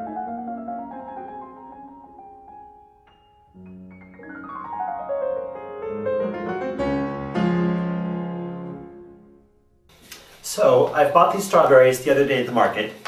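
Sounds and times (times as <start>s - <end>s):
piano music: 0.0s - 9.9s.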